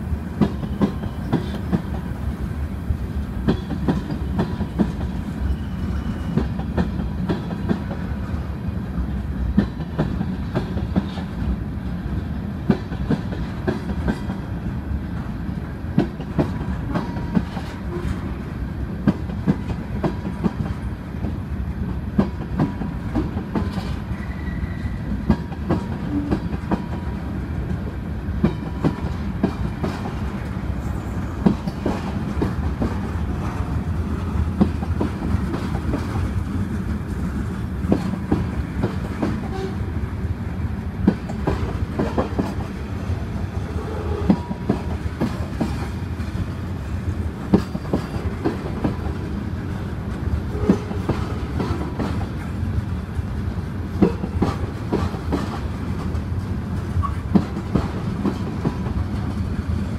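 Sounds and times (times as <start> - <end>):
train wheels rumbling on rail: 0.0 - 59.9
wheels clacking over rail joints: 0.3 - 2.1, 3.2 - 8.5, 15.2 - 39.8, 40.9 - 59.9.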